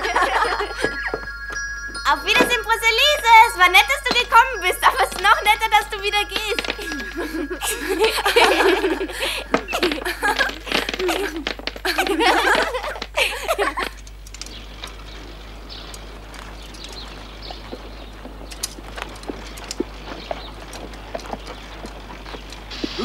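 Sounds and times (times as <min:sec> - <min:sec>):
children cheering and laughing: 0:00.0 - 0:01.3, 0:02.0 - 0:14.0.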